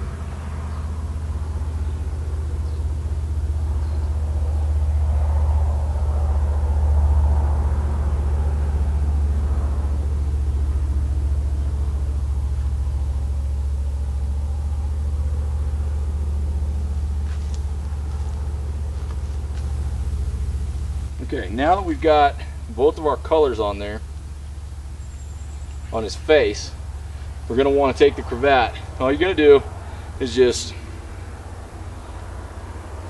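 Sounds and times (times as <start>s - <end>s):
low rumble: 0.0s - 33.0s.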